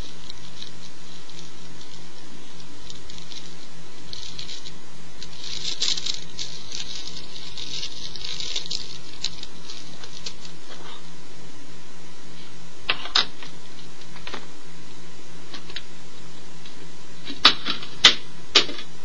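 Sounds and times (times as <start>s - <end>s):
herb grinder crunching: 0.0s - 11.0s
steady low hum: 0.0s - 19.0s.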